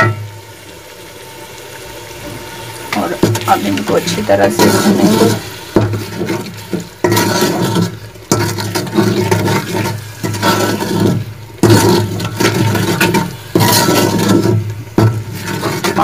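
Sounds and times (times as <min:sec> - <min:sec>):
spices sizzling in oil: 0:00.0 - 0:16.0
metal spoon scraping pot: 0:03.2 - 0:16.0.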